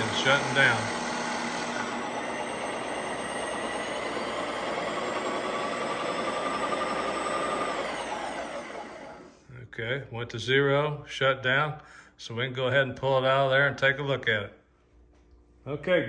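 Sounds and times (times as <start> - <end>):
ice cream maker motor running: 0.0 - 9.4.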